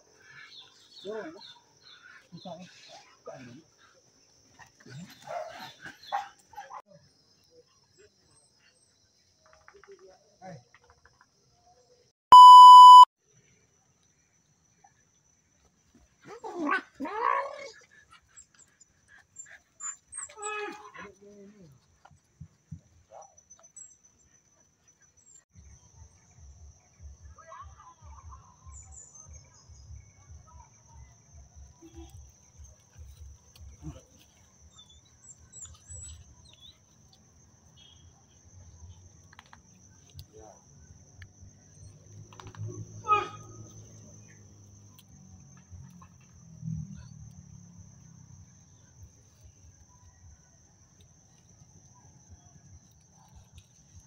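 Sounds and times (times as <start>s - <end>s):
insects trilling: 27.0s - 54.0s.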